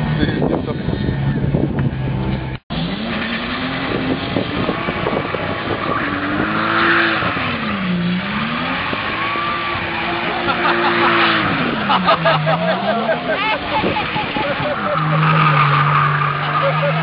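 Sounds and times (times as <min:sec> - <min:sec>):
car engine revving: 0:00.0 - 0:17.0
tyres squealing on tarmac: 0:09.1 - 0:17.0.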